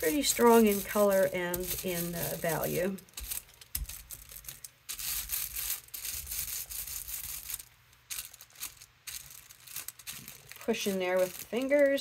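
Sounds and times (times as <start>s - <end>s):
scratchy rustling on paper: 0.0s - 12.0s.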